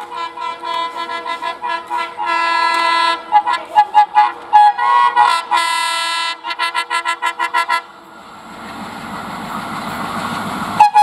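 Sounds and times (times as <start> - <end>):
locomotive horn blasts: 0.0 - 8.0, 10.8 - 11.0.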